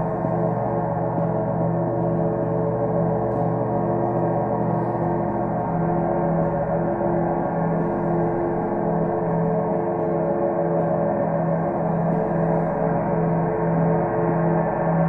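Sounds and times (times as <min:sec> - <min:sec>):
gongs ringing: 0:00.0 - 0:15.0.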